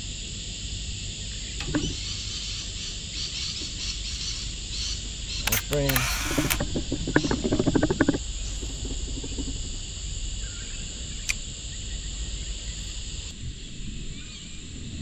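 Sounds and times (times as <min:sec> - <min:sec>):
high-pitched insect chorus: 0:00.0 - 0:15.0
sharp click: 0:01.6 - 0:02.1, 0:05.4 - 0:09.8.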